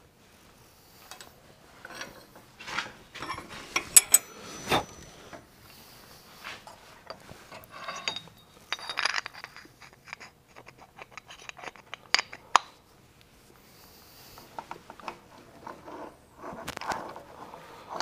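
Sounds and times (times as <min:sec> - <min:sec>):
metal clinking and clattering: 0:03.2 - 0:04.3, 0:07.1 - 0:10.3.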